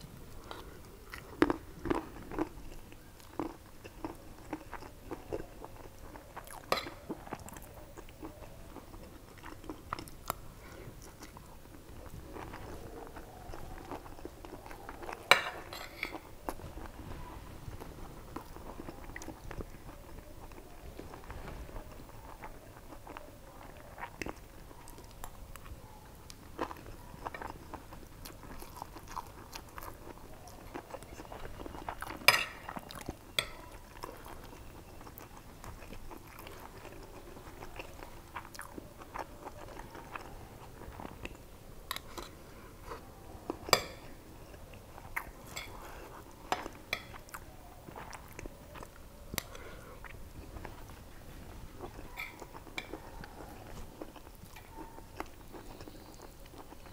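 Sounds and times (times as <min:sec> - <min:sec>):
chewing and biting food: 0:00.3 - 0:17.0, 0:18.3 - 0:56.9
cutlery clinking on a plate: 0:15.3 - 0:16.2, 0:32.2 - 0:32.7, 0:33.4 - 0:33.7, 0:43.8 - 0:44.1, 0:52.2 - 0:53.0.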